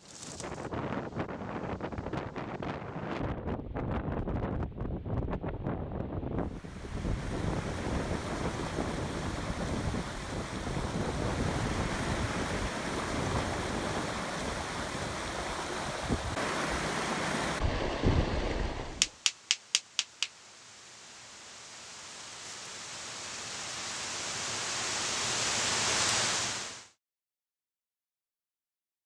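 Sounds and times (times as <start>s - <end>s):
stream rushing over rocks: 6.6s - 26.9s
stone striking stone: 19.0s - 20.4s.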